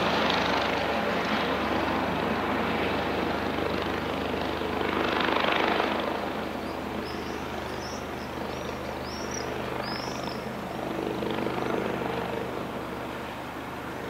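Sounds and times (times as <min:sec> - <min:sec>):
helicopter flying overhead: 0:00.0 - 0:14.0
bird chirping: 0:06.6 - 0:10.5.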